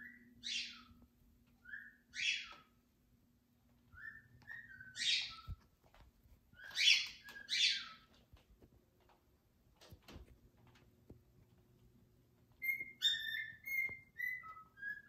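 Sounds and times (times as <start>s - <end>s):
parrots calling: 1.6s - 2.7s, 6.6s - 8.1s, 12.6s - 15.0s.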